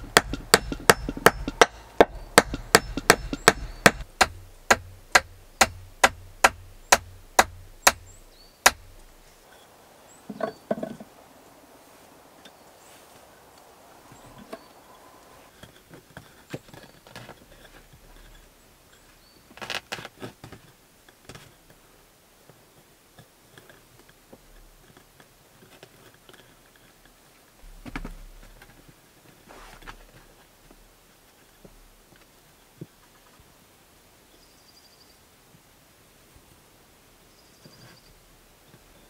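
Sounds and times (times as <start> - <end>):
knocks on wooden pole: 0.0 - 8.1, 8.7 - 9.0.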